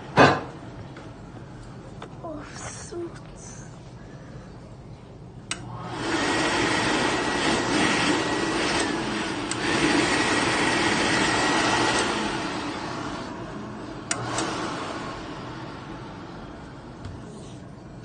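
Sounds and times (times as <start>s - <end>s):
hand dryer blowing air: 5.6s - 17.8s.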